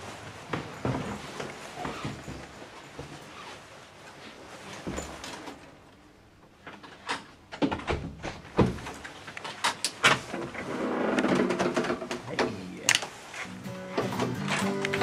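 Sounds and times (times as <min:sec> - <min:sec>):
jacket fabric rustling: 0:00.0 - 0:06.3
door unlocking and opening: 0:13.9 - 0:15.0.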